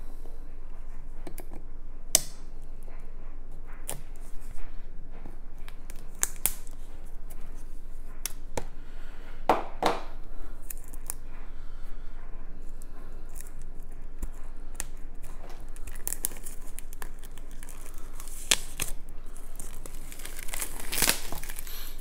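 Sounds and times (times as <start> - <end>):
packaging rustling: 13.2 - 22.0.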